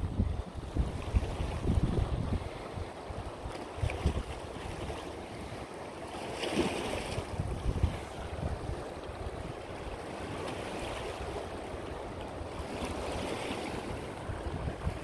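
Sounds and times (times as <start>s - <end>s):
wind buffeting microphone: 0.0s - 5.6s, 6.7s - 15.0s.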